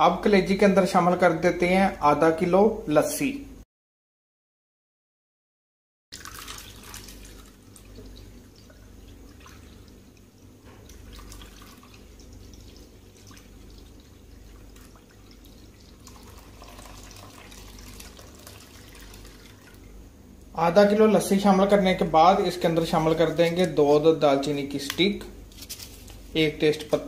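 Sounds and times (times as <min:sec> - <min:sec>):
liquid pouring into a pot: 0:06.1 - 0:20.0
small drips and splashes: 0:06.1 - 0:20.5.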